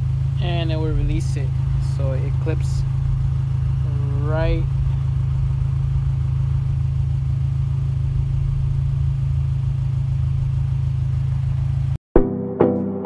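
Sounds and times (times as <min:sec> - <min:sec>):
car engine idling: 0:00.0 - 0:12.0
piano music: 0:12.2 - 0:13.0.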